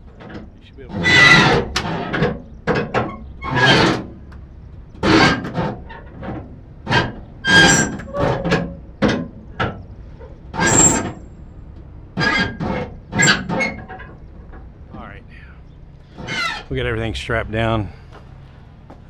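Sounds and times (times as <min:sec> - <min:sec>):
ratchet straps clanking: 0:00.0 - 0:15.0.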